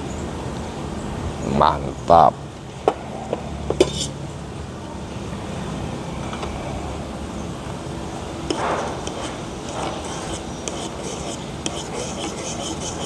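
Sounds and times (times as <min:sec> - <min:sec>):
road traffic hum: 0:00.0 - 0:13.0
spoon stirring in metal cup: 0:08.5 - 0:13.0.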